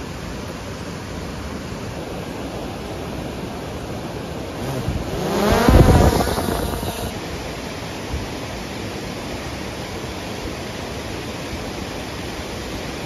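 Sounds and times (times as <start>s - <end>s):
waterfall rushing: 0.0s - 13.0s
drone propellers whining: 4.5s - 7.5s.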